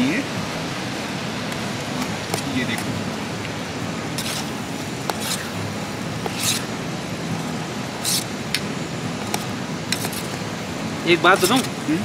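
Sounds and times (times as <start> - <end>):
steady rushing noise: 0.0 - 12.0
spoon scraping in a pot: 4.2 - 5.6, 6.2 - 6.7, 8.0 - 8.3.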